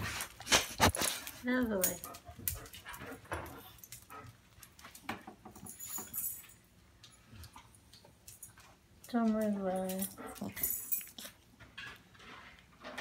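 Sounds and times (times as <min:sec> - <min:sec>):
metallic jingle: 0:05.6 - 0:06.7, 0:09.7 - 0:11.2.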